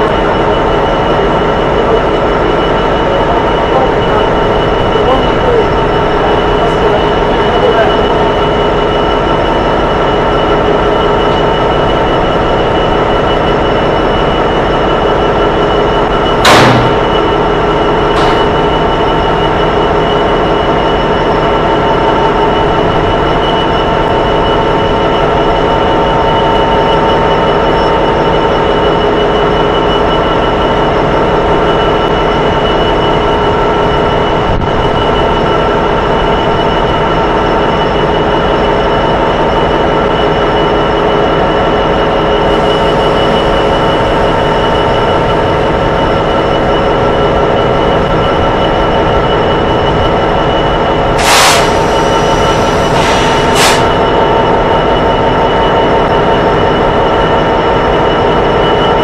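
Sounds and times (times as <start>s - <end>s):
locomotive engine idling: 0.0s - 59.0s
sharp bang: 16.4s - 17.2s.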